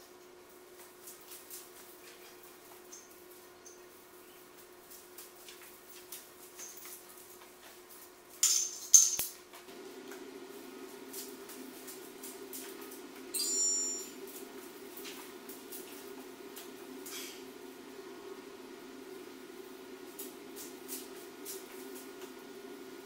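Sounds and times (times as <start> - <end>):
steady low hum: 0.0 - 23.0
magnetic tape crinkling and clicking: 9.7 - 13.3, 19.8 - 22.9.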